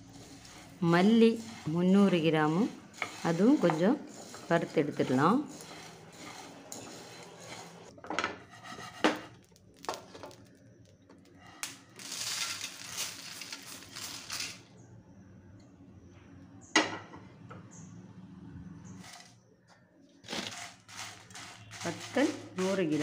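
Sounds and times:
seeds pouring onto steel plate: 0.0 - 7.9, 9.3 - 10.6, 11.4 - 14.7, 20.3 - 23.0
seeds rattling in a frying pan: 0.0 - 14.7, 20.3 - 23.0.

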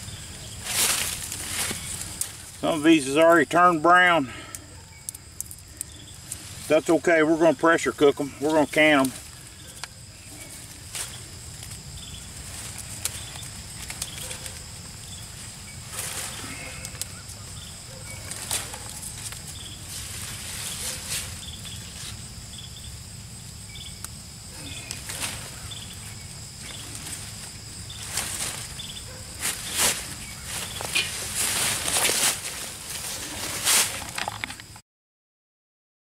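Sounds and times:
vines rustling and crackling: 0.0 - 4.2, 4.9 - 22.3, 23.9 - 34.8
high-pitched insect drone: 19.0 - 34.7.

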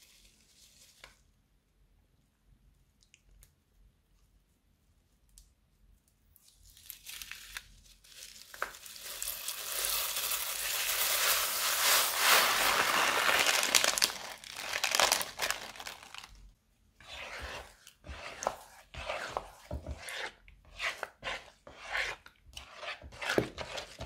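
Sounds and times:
plastic bag crinkling: 6.7 - 16.5
beads pouring onto slime: 8.5 - 16.3.

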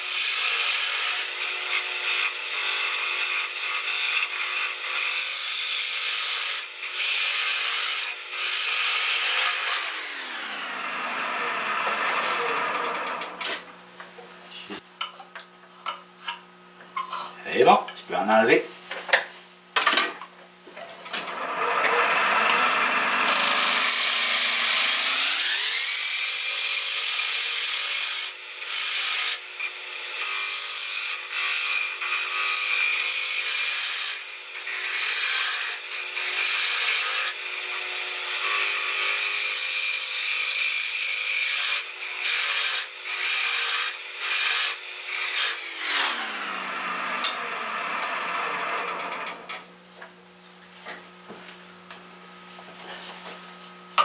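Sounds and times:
wood lathe whine: 6.2 - 13.9, 20.8 - 27.5, 41.5 - 49.6
gouge cutting wood: 21.4 - 26.3.

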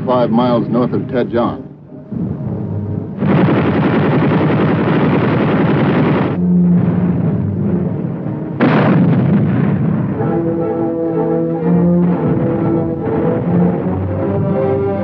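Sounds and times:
orchestral music: 0.0 - 3.4, 6.4 - 15.0
artillery fire and explosions: 3.2 - 15.0.

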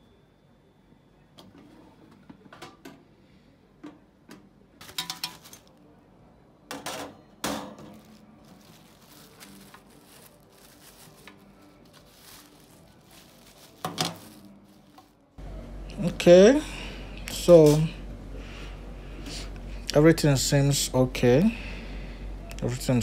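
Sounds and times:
plastic packaging crinkling: 4.8 - 5.8, 7.9 - 15.4.

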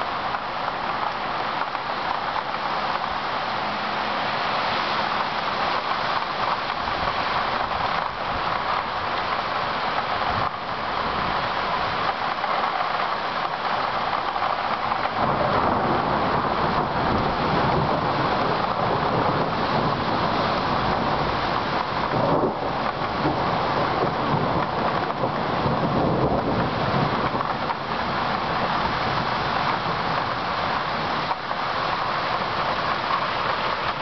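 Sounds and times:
heavy rain on leafy trees: 0.0 - 34.0
rolling thunder: 14.8 - 31.1.

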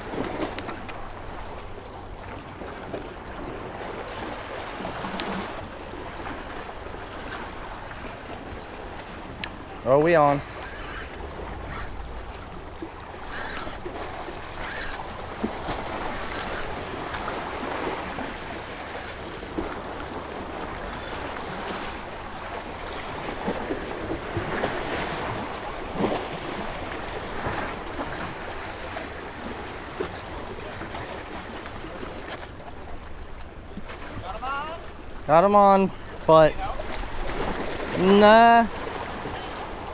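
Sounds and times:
waves splashing against rocks: 0.0 - 39.9.

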